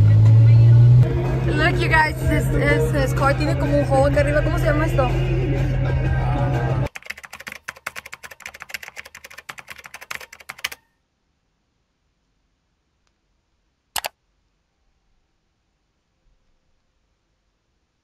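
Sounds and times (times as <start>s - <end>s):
music: 0.0s - 6.9s
keyboard typing clicks: 6.9s - 10.9s, 14.0s - 14.2s.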